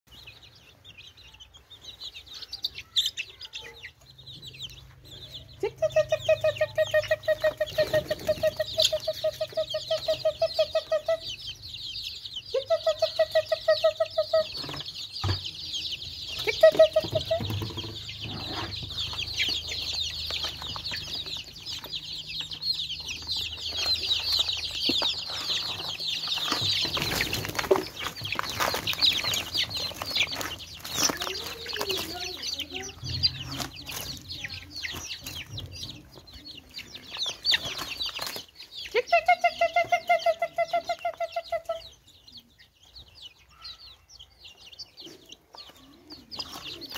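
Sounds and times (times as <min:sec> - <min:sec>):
chicks peeping: 0:00.1 - 0:46.9
hen clucking rapidly: 0:05.6 - 0:11.7, 0:16.0 - 0:38.3.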